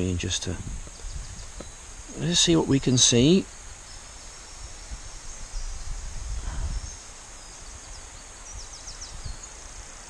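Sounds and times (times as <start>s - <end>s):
small bird chirping: 0.0s - 10.0s
low uneven rumble: 4.6s - 7.3s.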